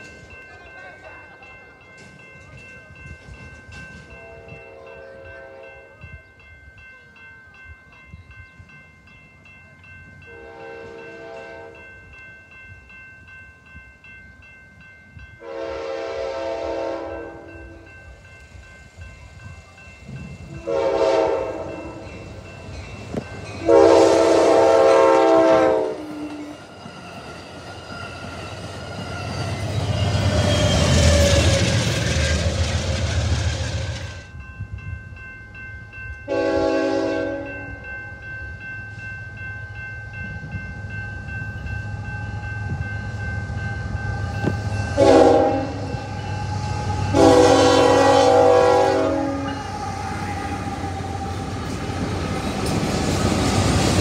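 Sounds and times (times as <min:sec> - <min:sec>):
crossing warning bells ringing: 0:00.0 - 0:54.0
train horn blasts: 0:04.2 - 0:06.0, 0:10.3 - 0:11.8, 0:15.4 - 0:17.9, 0:20.6 - 0:22.1, 0:23.6 - 0:26.6, 0:36.3 - 0:37.7, 0:44.4 - 0:46.2, 0:46.8 - 0:50.8
train wheels rumbling: 0:14.8 - 0:54.0.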